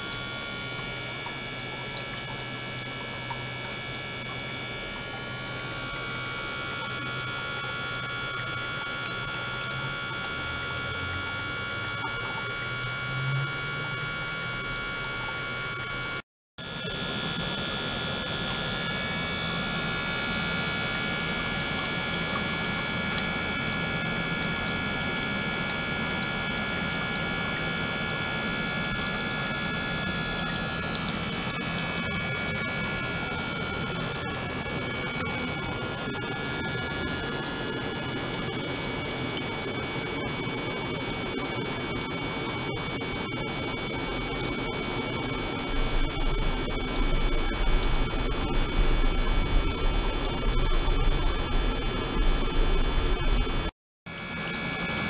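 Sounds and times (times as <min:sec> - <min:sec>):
high whining tones: 0:00.0 - 0:16.2, 0:29.2 - 0:53.7
electrical hum: 0:00.0 - 0:54.4.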